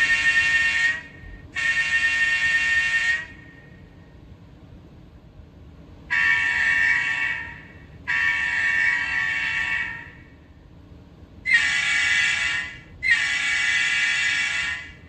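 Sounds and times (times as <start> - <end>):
model locomotive air horn: 0.0 - 3.9, 6.1 - 10.3, 11.5 - 15.0.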